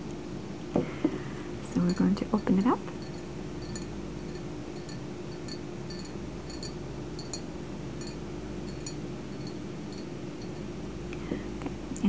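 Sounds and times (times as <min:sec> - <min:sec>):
steady room hum: 0:00.0 - 0:12.0
fingernails tapping glass bottle: 0:01.8 - 0:10.6.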